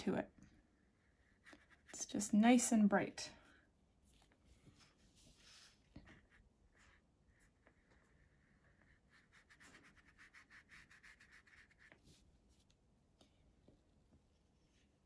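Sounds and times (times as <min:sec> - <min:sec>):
brush stroking across paper: 0:01.0 - 0:02.2, 0:04.1 - 0:12.7.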